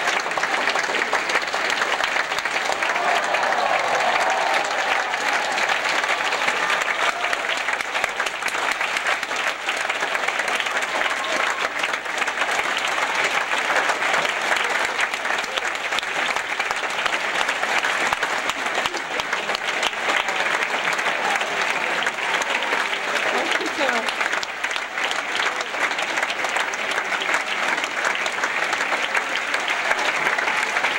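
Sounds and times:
audience applauding: 0.0 - 30.9.

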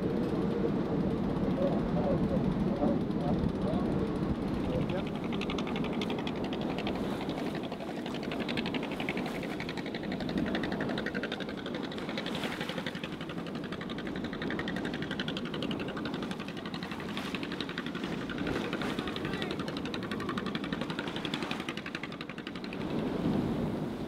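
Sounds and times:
waves: 0.0 - 24.0
wind: 0.0 - 24.0
small boat engine knocking: 0.1 - 23.9.

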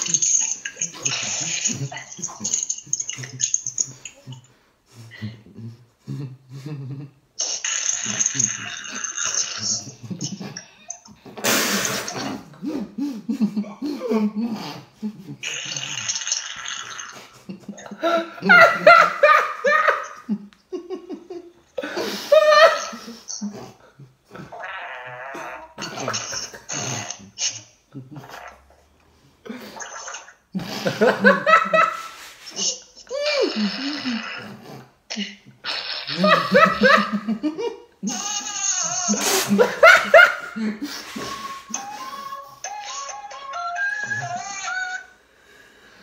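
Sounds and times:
people laughing: 0.0 - 4.4, 17.4 - 23.5, 30.7 - 33.5, 36.1 - 43.0
short hissing noise: 11.4 - 12.2.

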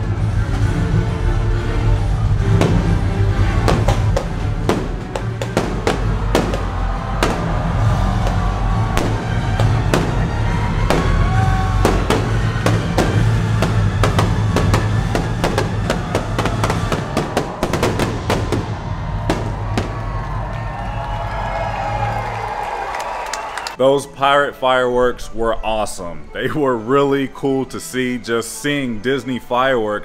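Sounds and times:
fireworks bangs and crackles: 2.4 - 22.1
music with drums: 2.5 - 18.7.

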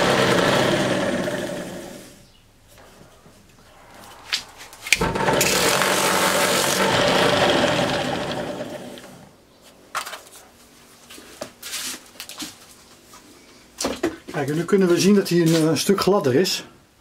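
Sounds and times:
drill press motor running: 0.0 - 2.2, 5.0 - 9.3
motor winding down: 0.0 - 2.2, 4.9 - 9.3.

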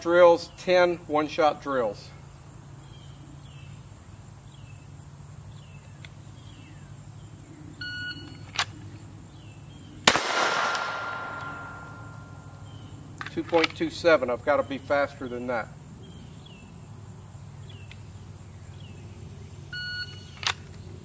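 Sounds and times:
pistol shot: 10.0 - 12.4
steel target ringing: 10.1 - 12.5.

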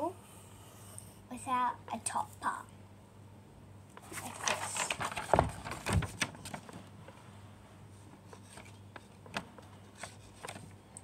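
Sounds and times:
paper crinkling: 4.0 - 6.8.

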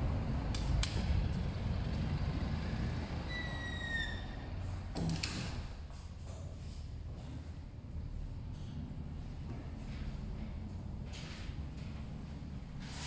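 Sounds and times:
street traffic rumble: 0.0 - 13.0
short high squeak: 3.3 - 4.4
glass door opening and shutting: 3.3 - 5.8.

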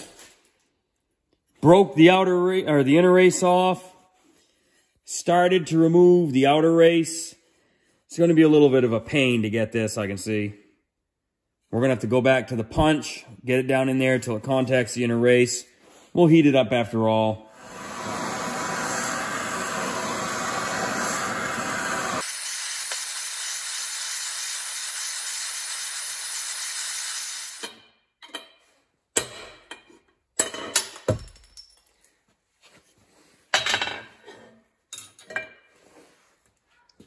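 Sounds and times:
gas torch flame hissing: 17.5 - 27.7.

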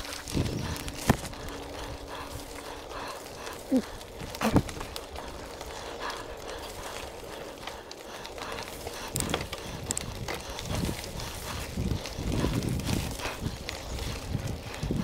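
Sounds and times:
bike knocking and rattling: 0.0 - 15.0
bike tyre and air noise: 0.0 - 15.0.

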